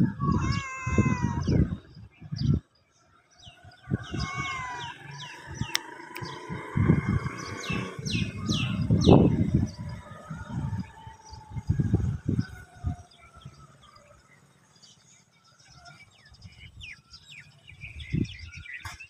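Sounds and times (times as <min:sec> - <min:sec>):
cat meowing: 0:00.2 - 0:01.6, 0:04.0 - 0:05.0
low rumbling noise: 0:03.8 - 0:13.1.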